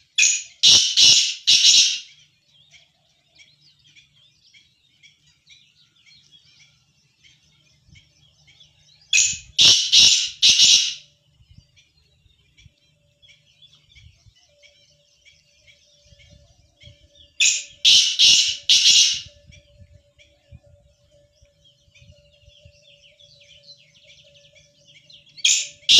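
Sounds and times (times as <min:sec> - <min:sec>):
francolin calling: 0:00.0 - 0:02.3, 0:09.1 - 0:11.1, 0:12.6 - 0:25.9
small birds twittering: 0:00.0 - 0:25.9.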